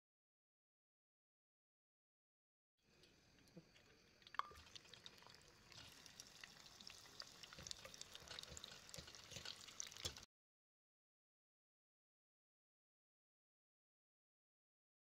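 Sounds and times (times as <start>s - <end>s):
potatoes frying in hot oil: 2.9s - 10.3s.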